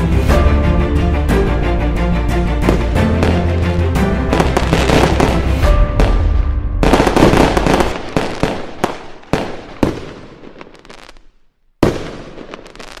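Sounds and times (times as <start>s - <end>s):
fireworks bangs and crackling: 2.6s - 3.6s, 4.2s - 13.0s
sharp firework cracks: 6.8s - 13.0s.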